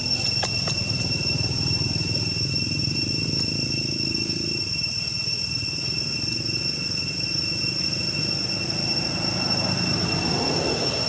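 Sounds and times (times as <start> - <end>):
high-pitched insect drone: 0.0 - 11.0.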